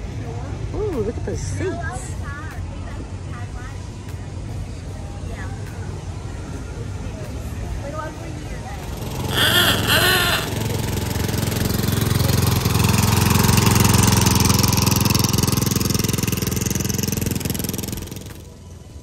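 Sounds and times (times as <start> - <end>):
vehicle engine running: 0.0 - 19.0
brief voice-like call: 9.3 - 10.6.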